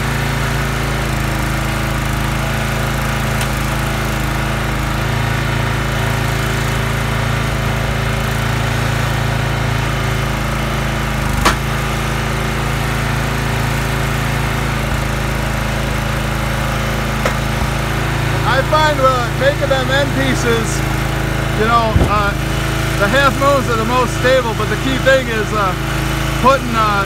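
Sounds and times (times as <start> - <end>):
gas engine running: 0.0 - 27.0
sharp crack: 11.4 - 11.8, 21.7 - 22.7.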